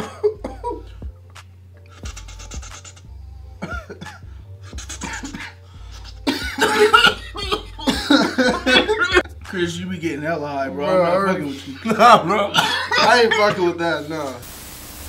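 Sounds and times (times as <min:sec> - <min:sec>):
men coughing: 0:00.0 - 0:01.0, 0:02.0 - 0:09.4, 0:11.5 - 0:13.8
hissing draw on a joint: 0:01.9 - 0:03.2.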